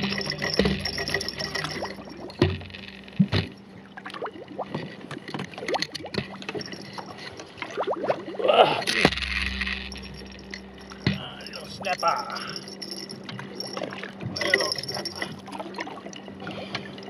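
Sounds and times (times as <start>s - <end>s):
scattered clicks: 0.0s - 3.4s
boat motor hum: 0.0s - 17.0s
water sloshing against hull: 0.0s - 17.0s.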